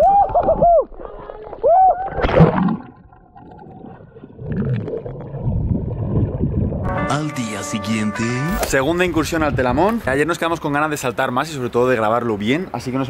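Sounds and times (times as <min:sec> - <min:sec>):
swimmer whooping: 0:00.0 - 0:02.5
underwater rushing and gurgling: 0:00.3 - 0:06.9
water splash: 0:02.0 - 0:06.9.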